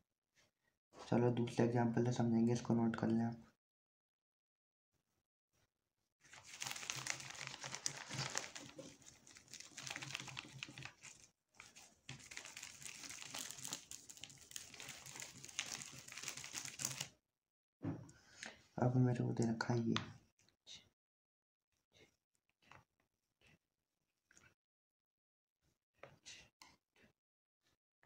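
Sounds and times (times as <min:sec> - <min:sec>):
cloth scrubbing plastic sheet: 0:06.3 - 0:17.1.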